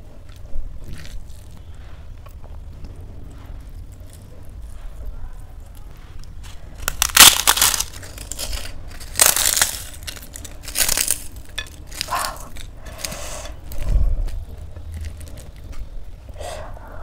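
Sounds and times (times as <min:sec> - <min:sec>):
crisp papad crackling and snapping: 0:05.4 - 0:16.3.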